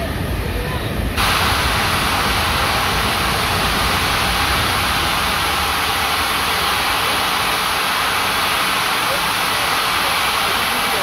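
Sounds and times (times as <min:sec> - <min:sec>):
low rumble: 0:00.0 - 0:08.8
steam locomotive hissing steam: 0:00.1 - 0:11.0.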